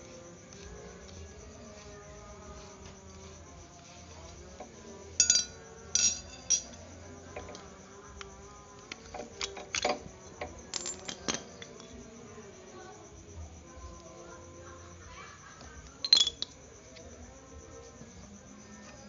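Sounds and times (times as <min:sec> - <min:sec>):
ringing metal clinks: 0:05.2 - 0:06.8, 0:10.7 - 0:12.0, 0:16.0 - 0:16.5.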